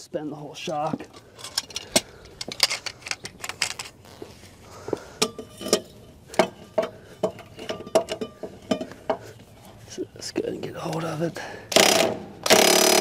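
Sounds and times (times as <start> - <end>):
pipe wrench clanking on metal: 5.2 - 9.3.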